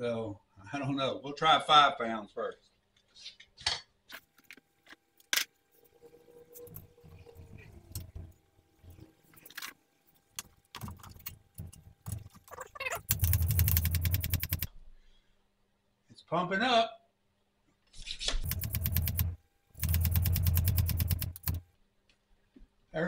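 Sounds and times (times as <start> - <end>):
loud fast rattling: 10.8 - 14.7, 18.4 - 21.7.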